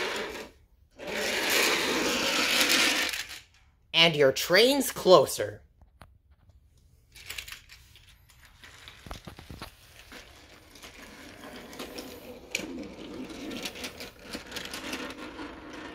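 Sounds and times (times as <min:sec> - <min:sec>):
toy train wheels rolling on track: 0:00.0 - 0:03.6, 0:07.2 - 0:15.9.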